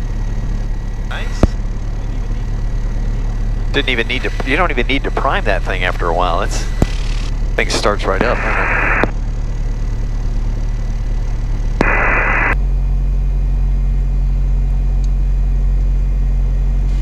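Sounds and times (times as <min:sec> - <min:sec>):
aircraft piston engine idling: 0:00.0 - 0:17.0
intercom hiss: 0:07.6 - 0:09.1, 0:11.8 - 0:12.6.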